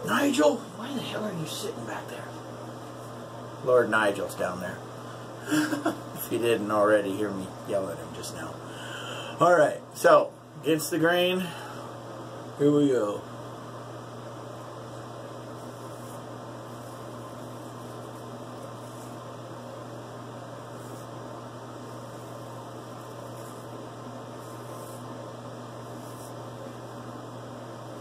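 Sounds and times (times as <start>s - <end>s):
electrical hum: 0.0s - 28.0s
razor scraping stubble: 15.5s - 19.3s, 20.6s - 25.2s, 25.8s - 26.5s.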